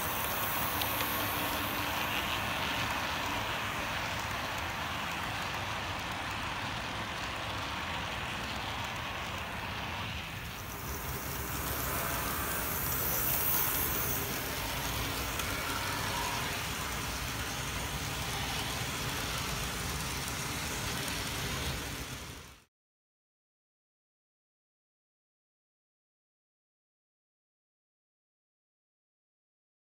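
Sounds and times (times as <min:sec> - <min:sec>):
high hiss: 0:00.0 - 0:22.6
model train wheels on rail: 0:00.0 - 0:22.7.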